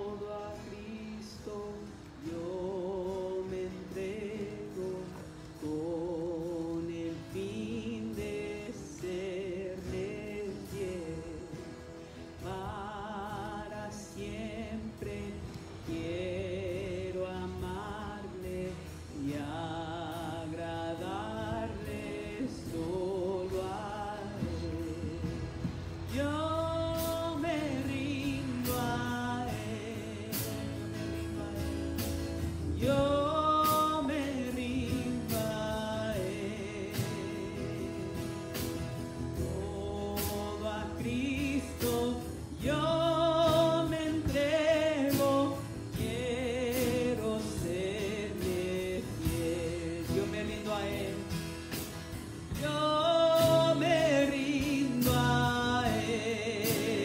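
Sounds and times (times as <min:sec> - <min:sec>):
acoustic guitars: 0:00.0 - 0:57.0
drum kit beat: 0:21.0 - 0:57.0.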